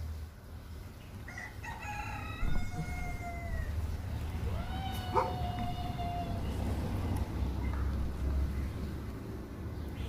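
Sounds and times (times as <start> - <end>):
rooster crowing: 1.3 - 3.9, 4.5 - 6.6.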